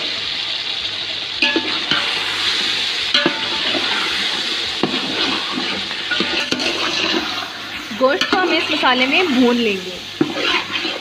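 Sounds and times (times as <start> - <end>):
meat sizzling in oil: 0.0 - 11.0
metal spoon scraping pot: 4.8 - 7.6, 10.1 - 11.0.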